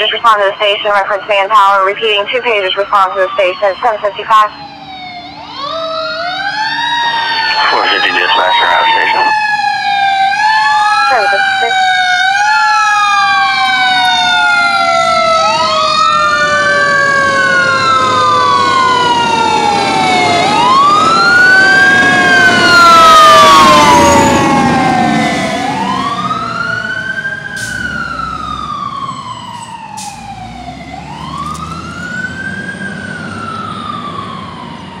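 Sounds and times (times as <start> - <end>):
fire engine siren wailing: 0.0 - 35.0.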